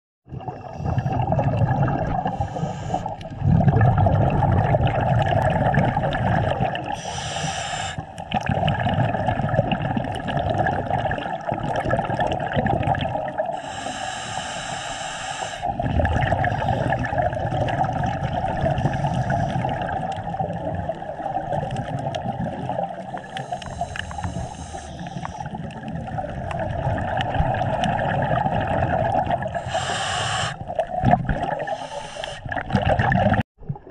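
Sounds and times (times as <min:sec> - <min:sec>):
scuba regulator exhalation bubbles: 0:00.3 - 0:14.8, 0:15.6 - 0:33.9
steady underwater hiss: 0:02.2 - 0:03.2, 0:06.9 - 0:08.2, 0:13.5 - 0:15.7, 0:18.5 - 0:20.0, 0:22.7 - 0:25.7, 0:29.4 - 0:30.9, 0:31.6 - 0:32.6.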